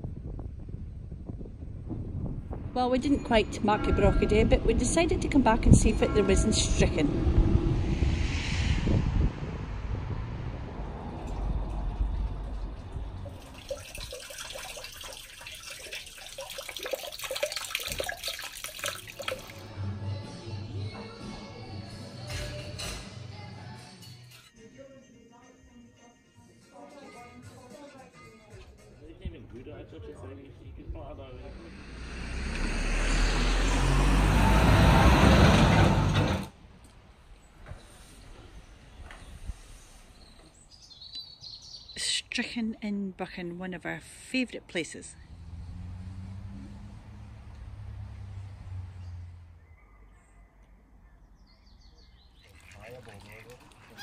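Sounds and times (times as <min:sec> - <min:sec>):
vehicle engine rumble passing: 0:00.1 - 0:15.3, 0:29.7 - 0:40.1, 0:44.6 - 0:50.4
fountain water splashing into basin: 0:13.1 - 0:19.7, 0:52.4 - 0:54.0.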